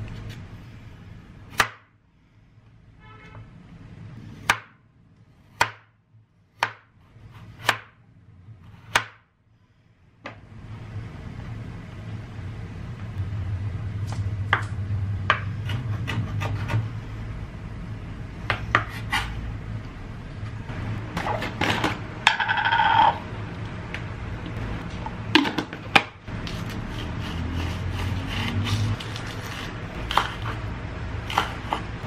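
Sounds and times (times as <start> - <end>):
steady low hum: 0.0 - 32.0
knife scraping board: 15.3 - 16.9, 18.5 - 19.4, 26.4 - 32.0
knife slicing carrot: 26.4 - 30.6, 31.2 - 32.0.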